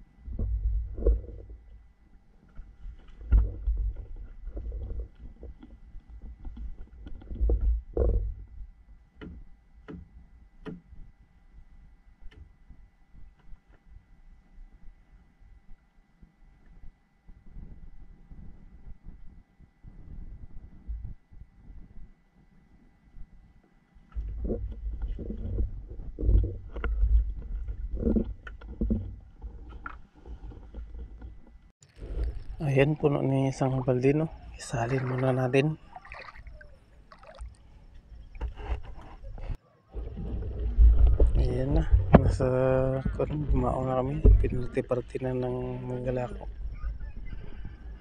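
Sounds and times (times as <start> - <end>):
low rumbling thumps: 38.1 - 48.0.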